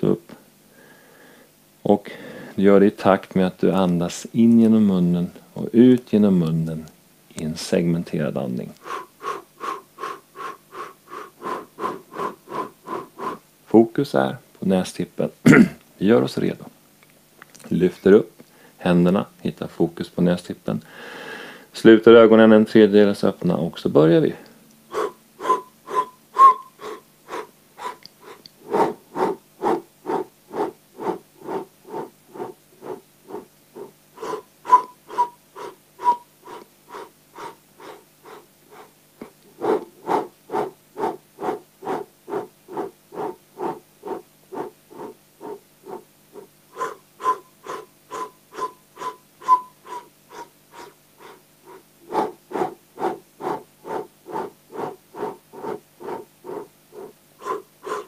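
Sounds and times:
man breathing sharply through mouth: 0:00.7 - 0:02.6, 0:08.8 - 0:13.4, 0:20.9 - 0:21.7, 0:24.9 - 0:58.0
faint whistle in breaths: 0:24.9 - 0:28.4, 0:29.7 - 0:38.4, 0:43.2 - 0:58.0.

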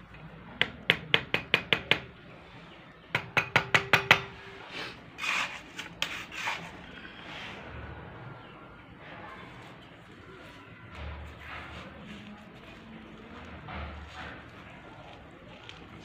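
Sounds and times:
trowel tapping: 0:00.6 - 0:02.1, 0:03.1 - 0:04.4
trowel scraping wet mortar: 0:04.8 - 0:07.7.

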